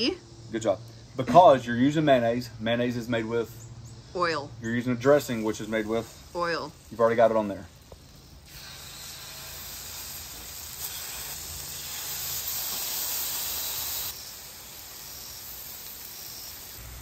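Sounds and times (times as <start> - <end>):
chicken sizzling on griddle: 4.8 - 17.0.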